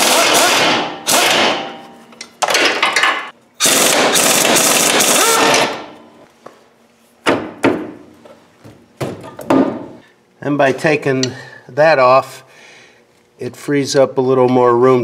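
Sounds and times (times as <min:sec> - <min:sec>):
pneumatic impact wrench hammering: 0:00.0 - 0:01.8, 0:02.4 - 0:06.0.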